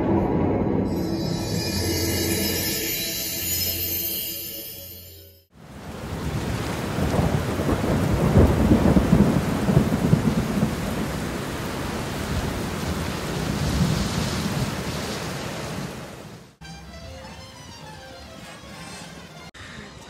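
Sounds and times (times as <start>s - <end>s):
heavy rain downpour: 5.6s - 16.6s
low rumble of thunder: 5.8s - 14.9s.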